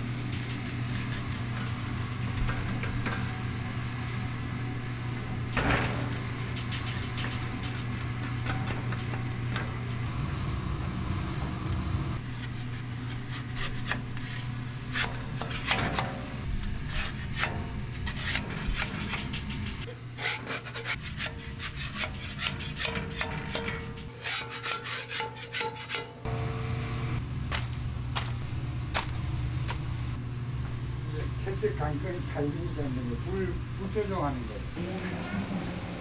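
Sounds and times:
steady low hum: 0.0 - 24.2, 26.2 - 36.0
metal spatula scraping steel pan: 16.9 - 26.1.

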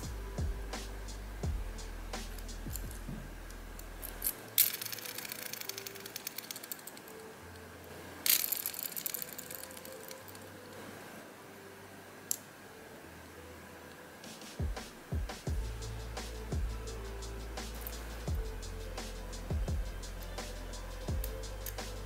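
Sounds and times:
fishing reel ratcheting: 4.0 - 7.1, 8.3 - 10.4.

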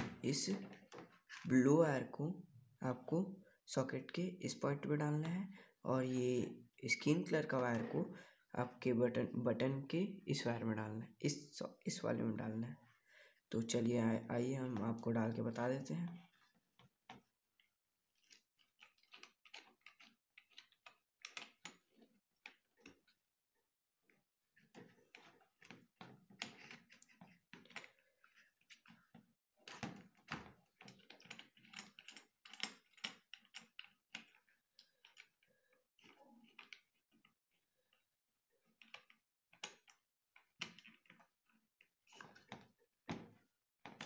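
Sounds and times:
hands handling wires and plastic: 15.8 - 23.3, 24.1 - 44.0.

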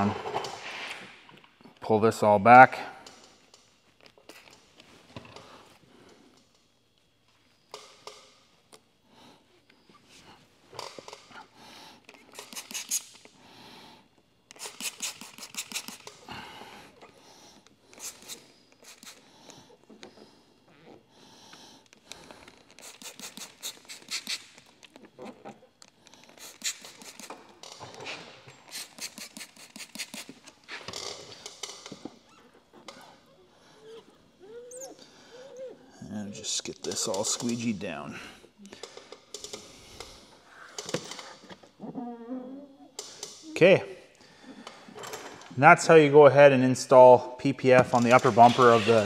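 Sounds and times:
spray bottle spritzing: 12.3 - 13.2, 14.5 - 16.2, 17.9 - 19.2, 22.7 - 24.6, 26.4 - 27.4, 28.7 - 30.5
squeegee squeaking: 32.0 - 37.7, 47.8 - 49.0.

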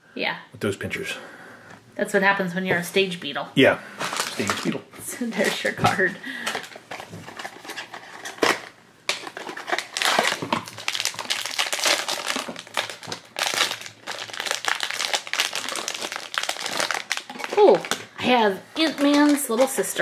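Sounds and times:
foil bag crinkling: 4.0 - 4.7, 6.3 - 18.2, 18.8 - 20.0.

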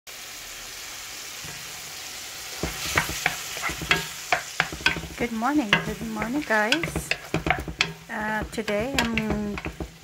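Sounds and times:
shrimp sizzling in frying pan: 0.1 - 10.0
wooden spoon scraping pan: 2.6 - 10.0.

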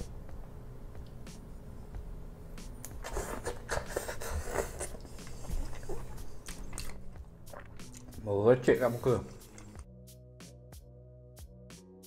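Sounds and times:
chewing clicks and smacks: 4.8 - 8.2, 9.4 - 9.8.

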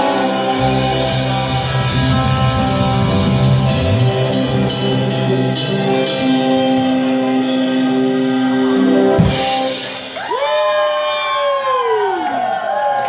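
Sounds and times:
drum and cymbal hits: 0.0 - 6.8, 9.2 - 10.8
electric guitar chords: 0.0 - 10.8.

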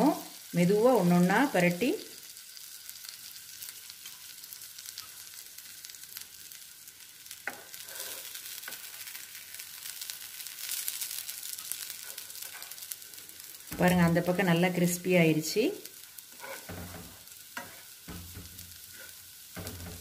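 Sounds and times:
patties sizzling in a pan: 0.0 - 20.0
spatula knocking on pan: 16.6 - 18.8, 19.5 - 20.0.

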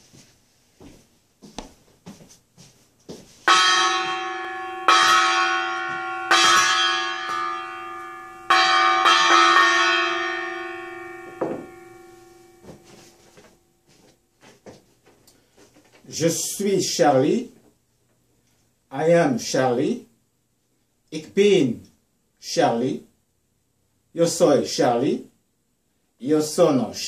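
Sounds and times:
bell ringing: 3.5 - 13.3
soft knocks: 11.3 - 11.8.

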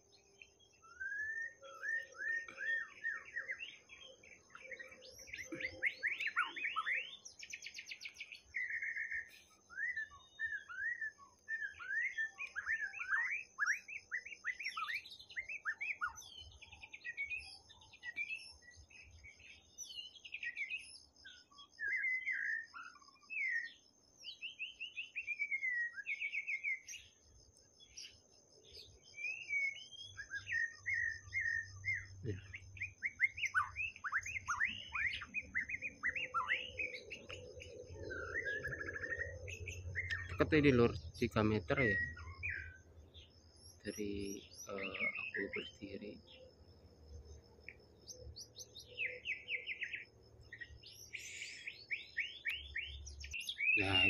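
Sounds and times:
bird singing whistled phrases: 0.4 - 27.2, 27.9 - 46.6, 47.6 - 54.0.

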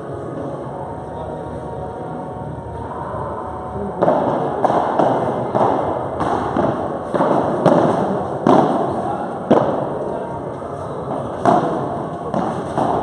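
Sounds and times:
padel ball hit by rackets: 4.0 - 9.9, 11.4 - 13.0.

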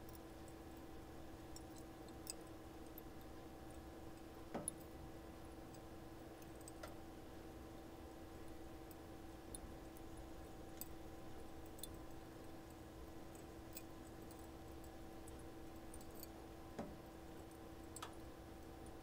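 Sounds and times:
steady low hum: 0.0 - 19.0
faint ticks: 8.4 - 19.0.

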